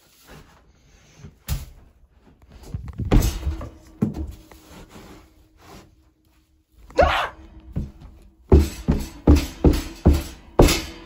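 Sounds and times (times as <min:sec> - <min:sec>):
knocks and thumps on wood: 0:07.8 - 0:10.9.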